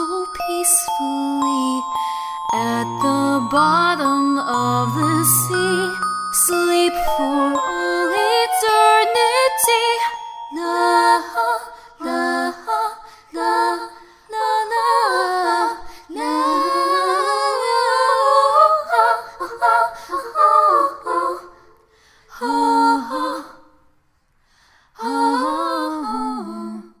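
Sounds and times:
woman singing without words: 0:00.0 - 0:21.5.

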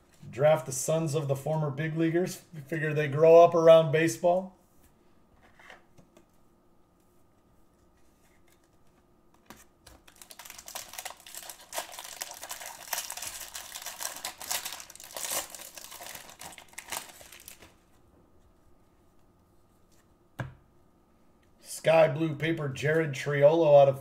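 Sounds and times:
foil wrapper crinkling: 0:09.9 - 0:17.8.

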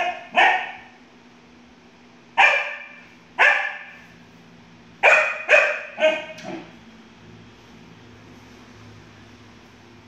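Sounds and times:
dog barking in tiled room: 0:00.0 - 0:01.1, 0:02.3 - 0:04.3, 0:04.9 - 0:06.8.

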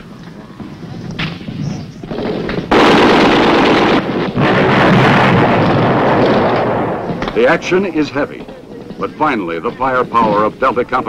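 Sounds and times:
gunshots: 0:01.2 - 0:10.6
heavy gunfire and blasts: 0:02.1 - 0:07.8.

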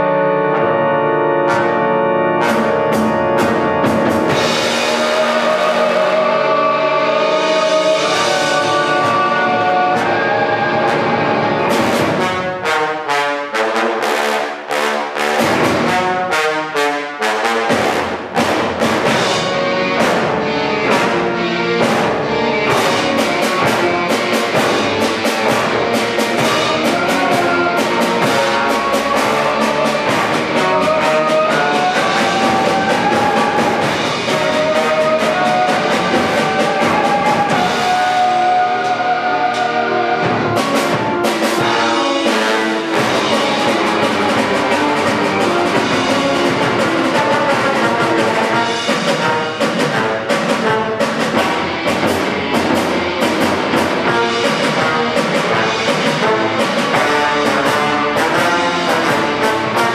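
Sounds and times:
live rock ensemble playing: 0:00.0 - 0:13.1, 0:17.6 - 0:59.9
brass and guitar chords: 0:00.0 - 0:59.9
drum hits: 0:11.7 - 0:12.7, 0:17.7 - 0:59.9.

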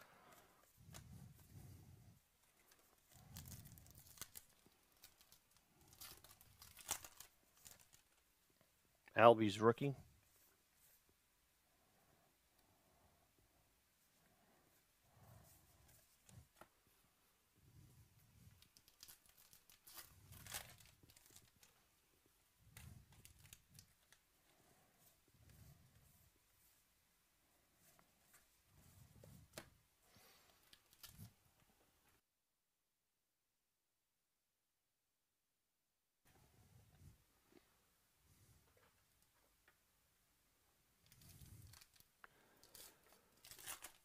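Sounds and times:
cards rustling: 0:02.4 - 0:08.2, 0:18.5 - 0:21.8, 0:41.1 - 0:44.0
wrapper tearing and crinkling: 0:02.7 - 0:08.2, 0:18.6 - 0:21.8, 0:22.8 - 0:24.2, 0:30.6 - 0:31.3, 0:41.0 - 0:44.0.

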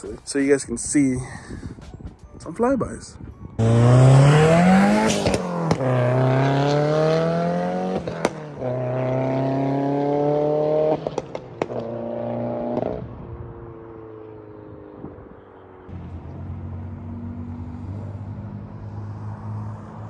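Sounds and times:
car engine accelerating hard: 0:03.6 - 0:13.2, 0:14.0 - 0:20.0.

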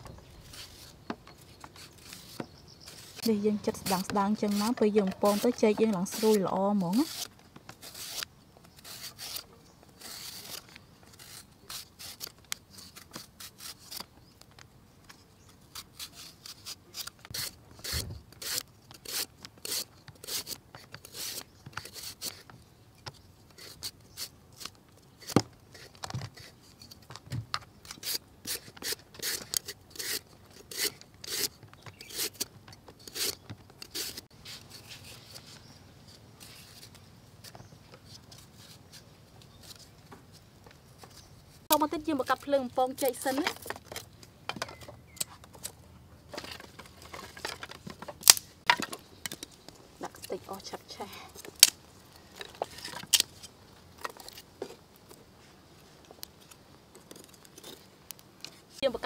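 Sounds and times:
banana slicer scraping: 0:01.6 - 0:14.1, 0:15.7 - 0:22.5, 0:27.8 - 0:39.0.

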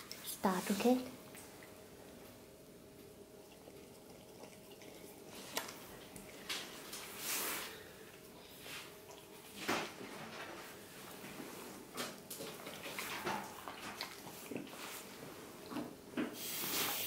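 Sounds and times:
puppy licking wet smacks: 0:03.4 - 0:06.4, 0:12.4 - 0:14.9
wet slurp: 0:03.4 - 0:06.4.

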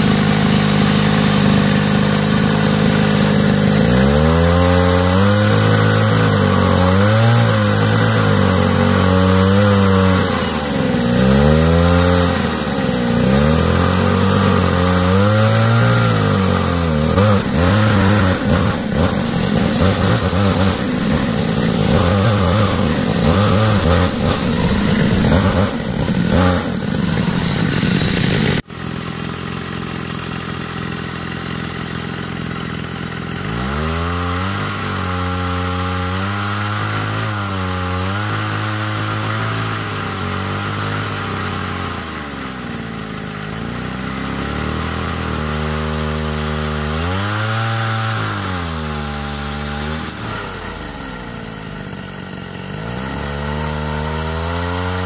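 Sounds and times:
hydraulic pump whine: 0:00.0 - 0:33.5.

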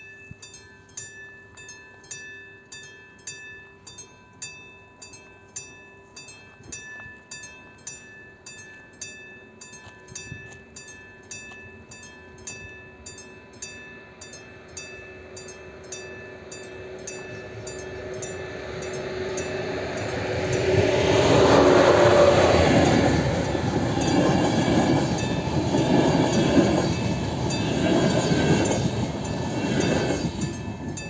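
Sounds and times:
level-crossing warning bell ringing: 0:00.0 - 0:31.0
approaching train rumble: 0:12.0 - 0:31.0.

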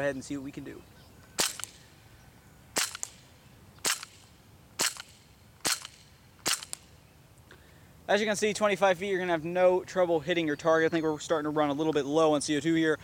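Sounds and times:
airsoft pistol shots: 0:01.4 - 0:01.9, 0:02.8 - 0:06.9.

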